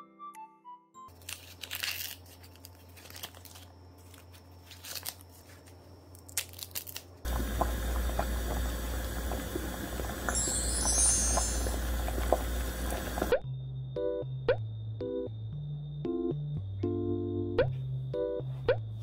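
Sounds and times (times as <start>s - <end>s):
corn husks rustling and tearing: 1.1s - 7.3s
water bubbling at a boil: 7.3s - 13.4s.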